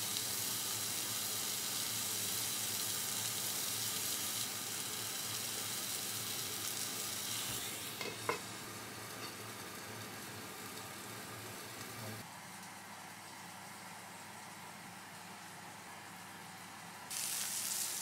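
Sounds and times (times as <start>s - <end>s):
food sizzling in a pan: 0.0s - 12.2s, 17.1s - 18.0s
glass lid clinking on pan: 8.0s - 8.4s.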